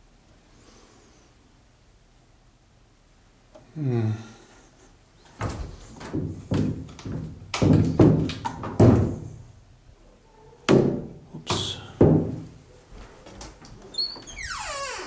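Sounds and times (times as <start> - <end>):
wooden wardrobe doors thunking: 5.4 - 9.5, 10.7 - 12.6.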